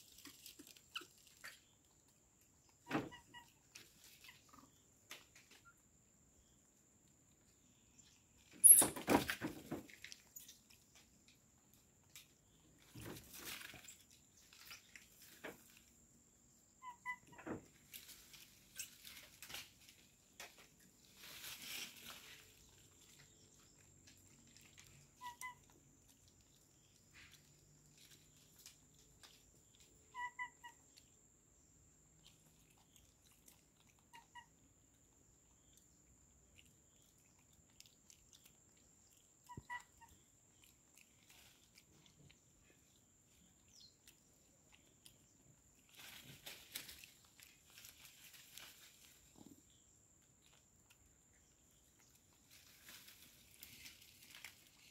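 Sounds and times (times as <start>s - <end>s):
monkey rustling and crunching food: 0.0s - 54.9s.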